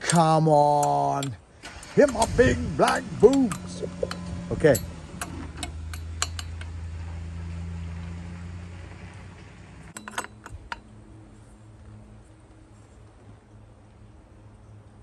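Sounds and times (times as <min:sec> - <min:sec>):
low hum: 0:01.4 - 0:15.0
metallic clinks of tools: 0:02.0 - 0:06.8, 0:10.0 - 0:10.9.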